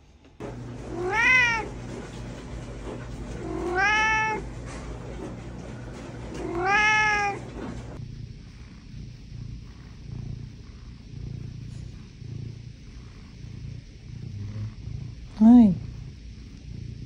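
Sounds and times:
cat meowing: 0.9 - 1.8, 3.4 - 4.5, 6.4 - 7.6.

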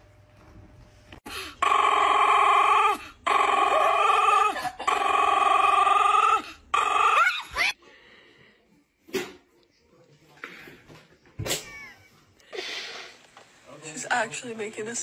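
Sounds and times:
dog howling: 1.6 - 7.8.

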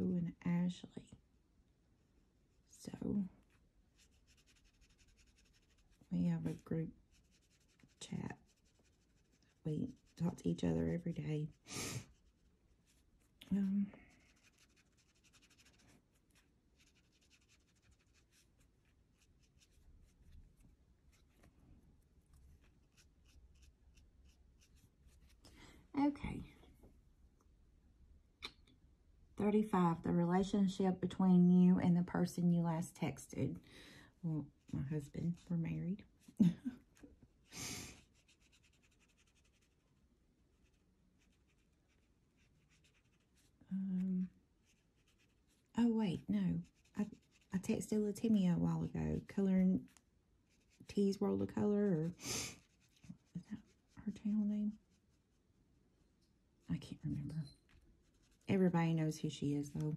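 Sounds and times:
pencil scratching on paper: 3.4 - 21.5, 22.4 - 25.4, 37.6 - 39.8, 40.5 - 43.6, 44.6 - 48.4, 50.5 - 55.3, 58.0 - 58.7.

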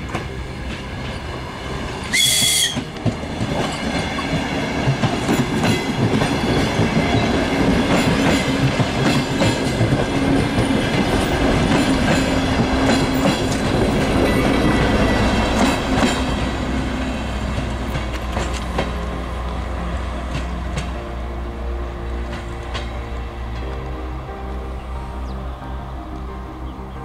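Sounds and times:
train rumble and hum: 0.0 - 27.0
train wheels clacking over rail joints: 2.1 - 21.1, 22.1 - 23.8.

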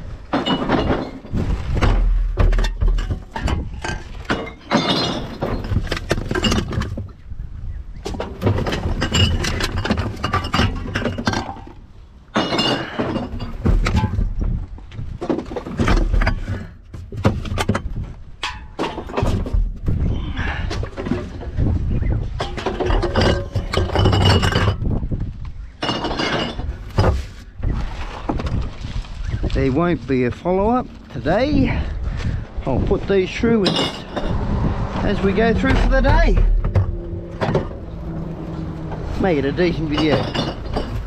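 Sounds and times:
glass bottles clinking: 0.3 - 1.4, 2.4 - 6.9, 8.6 - 14.1, 22.4 - 24.9, 25.8 - 27.2, 33.6 - 34.4, 39.6 - 41.0
low thumps: 30.5 - 41.0.

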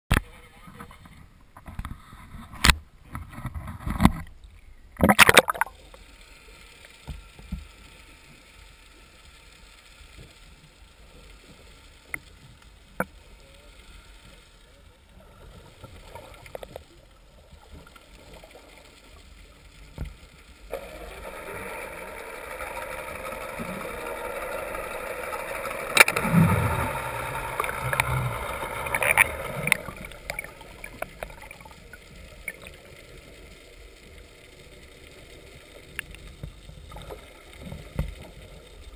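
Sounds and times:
muffled underwater sound: 12.9 - 38.9.

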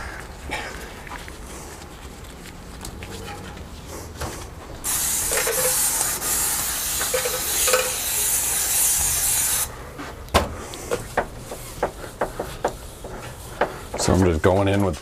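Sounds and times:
spray bottle hissing: 4.8 - 9.7.

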